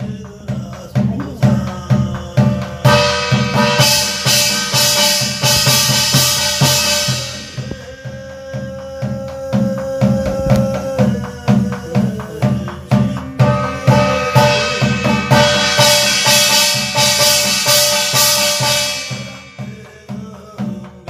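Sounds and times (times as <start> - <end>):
barrel drum beaten steadily: 0.0 - 21.0
person chanting: 0.0 - 21.0
bright ringing metallic wash: 13.4 - 20.3.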